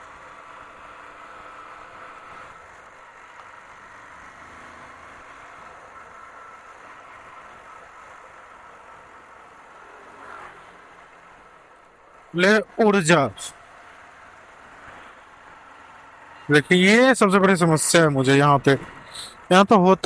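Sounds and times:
motorcycle engine running: 0.0 - 12.8
faint steady whine: 0.0 - 20.0
road noise: 0.0 - 20.0.

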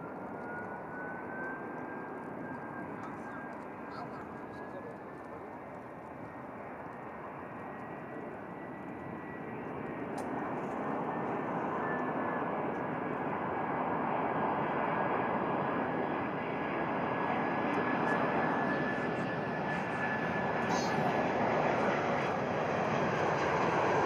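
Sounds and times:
high jet whine: 0.0 - 24.0
jet engine rumble: 0.0 - 24.0.

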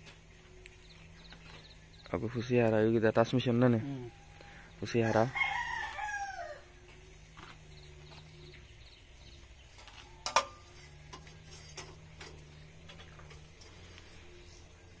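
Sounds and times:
rooster crowing: 3.8 - 6.8.

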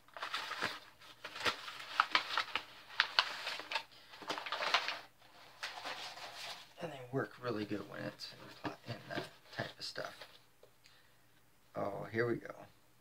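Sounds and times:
packing paper rustling: 0.0 - 6.8.

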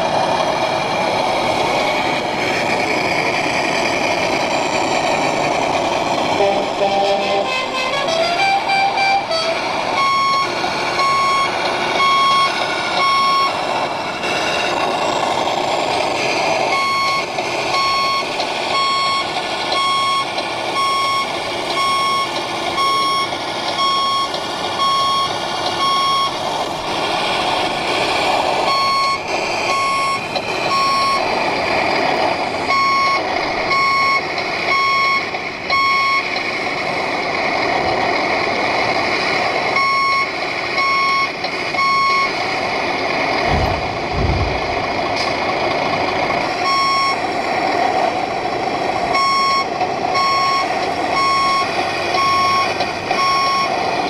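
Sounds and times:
steady background noise: 0.0 - 54.0
reversing beeper short beeps: 6.4 - 13.6, 16.8 - 26.4, 28.7 - 31.3, 32.7 - 36.3, 39.8 - 42.4, 46.6 - 47.2, 49.2 - 53.7.

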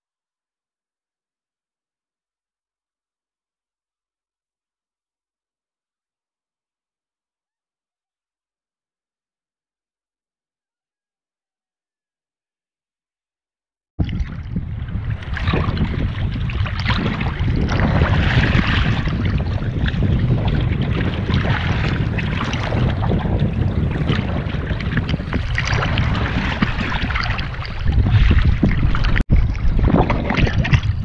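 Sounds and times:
seawater sloshing and splashing: 14.0 - 31.0
wind buffeting microphone: 14.0 - 31.0.

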